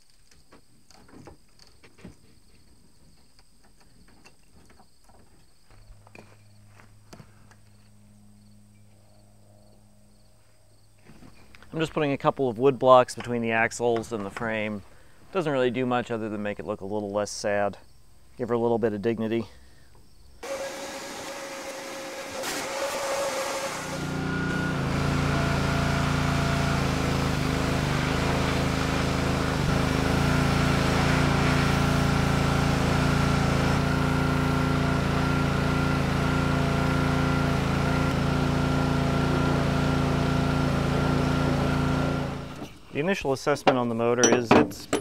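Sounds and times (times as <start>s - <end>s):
pressure washer running: 20.4s - 42.6s.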